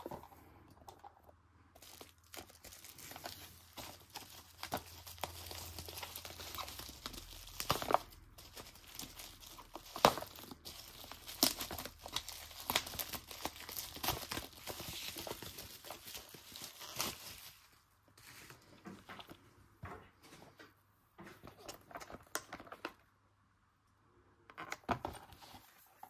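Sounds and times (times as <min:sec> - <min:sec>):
bubble wrap crinkling: 0:00.0 - 0:19.2.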